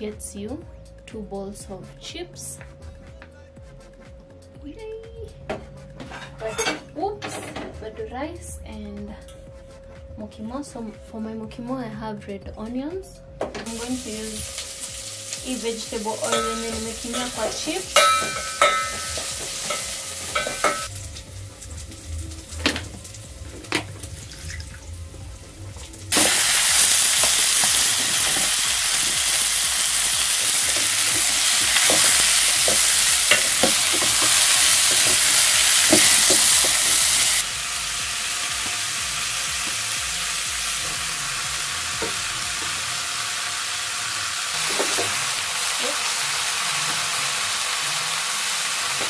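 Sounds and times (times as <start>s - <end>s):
potatoes sizzling in hot oil: 13.7s - 24.7s, 25.9s - 49.0s.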